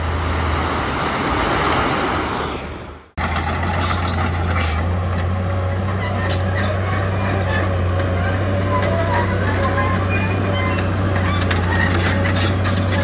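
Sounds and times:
diesel engine running: 3.2s - 13.0s.

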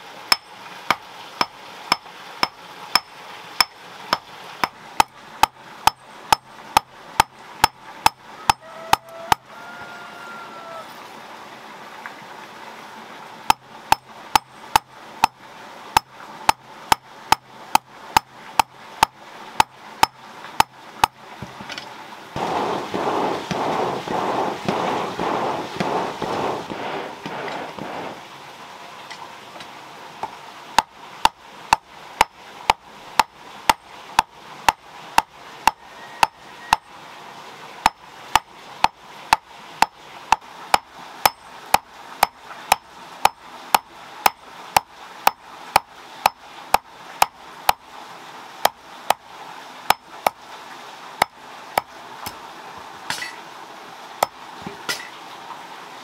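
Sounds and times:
hammer clinking on hot metal: 0.3s - 0.5s, 1.4s - 3.8s, 4.6s - 8.6s
rushing noise: 22.4s - 28.9s.

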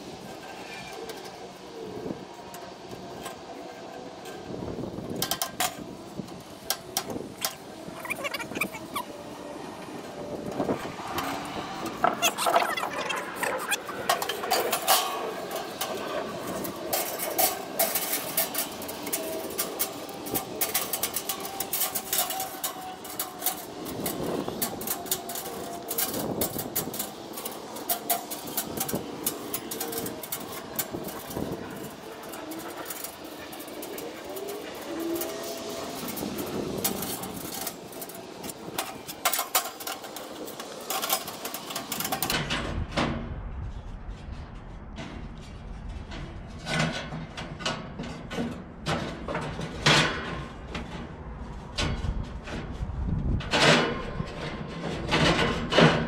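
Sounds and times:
metal parts clanking and rattling: 3.1s - 9.1s, 11.9s - 43.2s, 44.3s - 56.0s
short squeaks: 7.4s - 9.2s, 12.1s - 14.0s.

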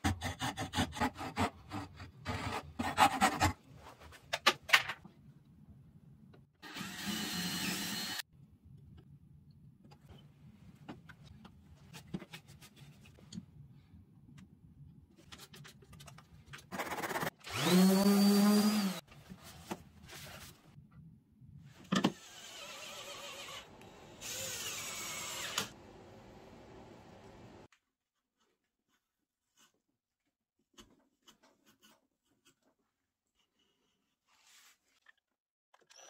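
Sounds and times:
small power tool motor: 6.6s - 8.2s, 17.4s - 19.0s, 22.2s - 25.8s.

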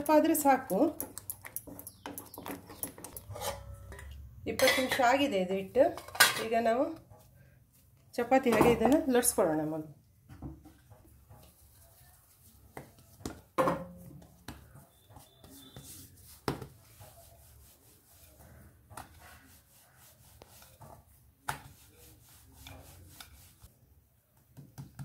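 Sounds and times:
rolling pin rolling dough: 10.5s - 25.0s.

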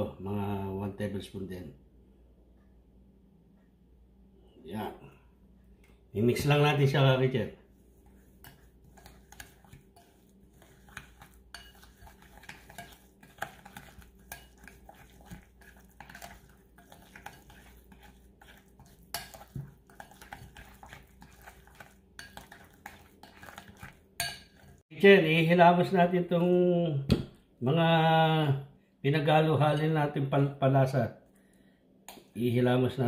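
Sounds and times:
utensil scraping glass bowl: 7.9s - 24.8s.

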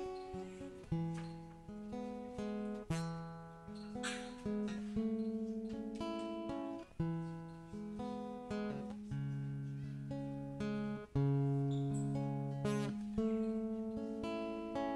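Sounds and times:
acoustic guitar playing: 0.0s - 14.9s.

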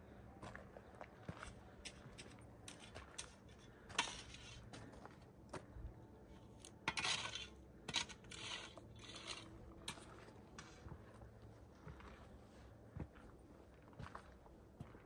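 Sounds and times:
footsteps on gravel: 0.4s - 5.8s, 8.8s - 15.0s.

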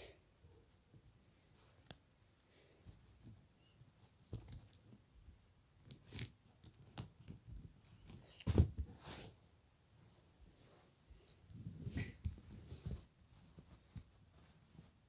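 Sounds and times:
rustling and light clicks: 4.0s - 9.3s, 11.1s - 15.0s.

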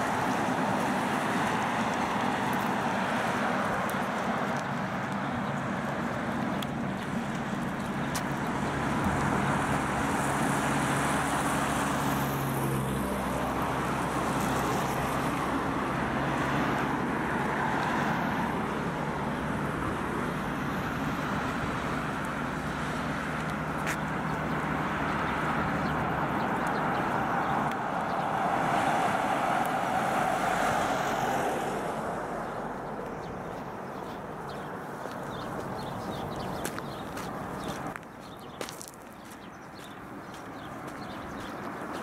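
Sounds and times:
cars passing on highway: 0.0s - 42.0s.

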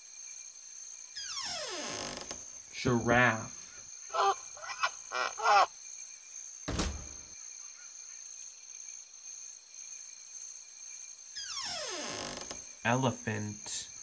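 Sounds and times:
short wavering animal calls: 4.1s - 5.7s
thud: 6.7s - 7.3s.

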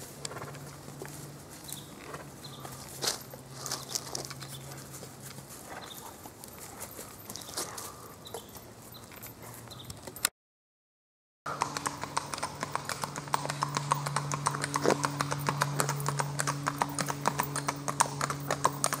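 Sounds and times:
horse hooves on paved road: 0.0s - 10.3s, 11.5s - 19.0s
steady low hum: 11.5s - 19.0s.

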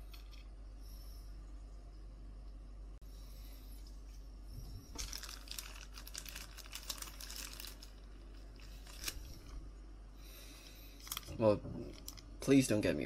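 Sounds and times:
thin plastic crinkling: 4.6s - 9.7s, 10.6s - 12.3s.

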